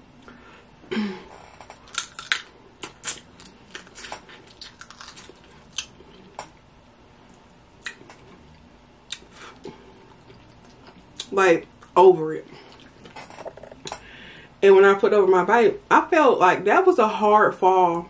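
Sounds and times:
crab shell cracking: 1.8s - 6.0s.

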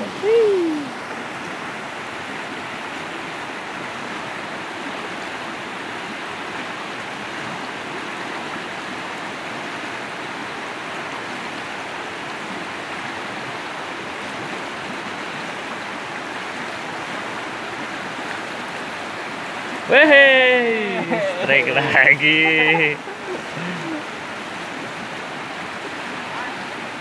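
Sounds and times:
river rushing water: 0.0s - 27.0s.

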